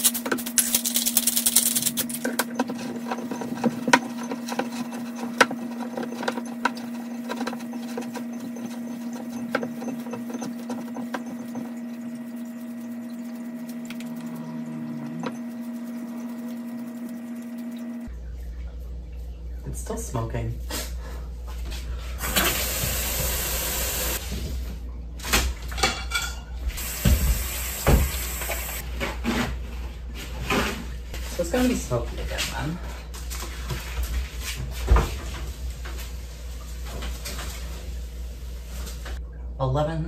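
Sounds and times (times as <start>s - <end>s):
pepper grinder crackling: 0.0s - 11.7s
steady low hum: 0.0s - 22.2s.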